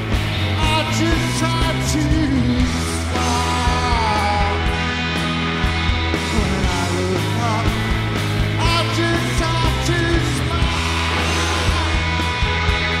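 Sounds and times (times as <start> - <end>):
drums: 0.0 - 13.0
electric bass: 0.0 - 13.0
electric guitar: 0.0 - 13.0
person singing: 0.6 - 4.8, 6.2 - 7.9, 8.6 - 12.2.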